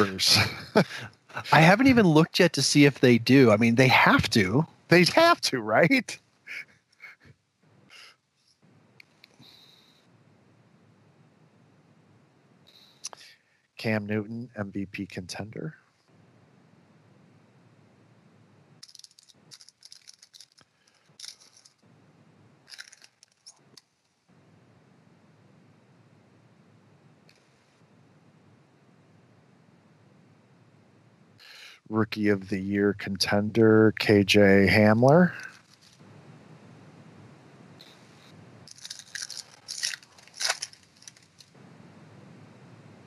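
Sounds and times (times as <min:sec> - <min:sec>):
cards rustling and flicking: 0:18.8 - 0:21.8, 0:22.7 - 0:24.0, 0:38.7 - 0:41.6
foil pack crinkling: 0:18.8 - 0:21.8, 0:22.7 - 0:23.6, 0:38.7 - 0:41.6.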